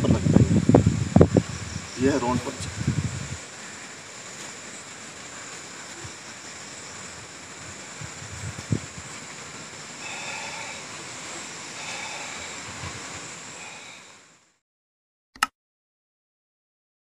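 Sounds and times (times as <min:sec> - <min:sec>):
wind rumble on microphone: 0:00.0 - 0:03.6, 0:07.0 - 0:09.4, 0:12.0 - 0:13.3
outdoor background hiss: 0:00.0 - 0:14.6.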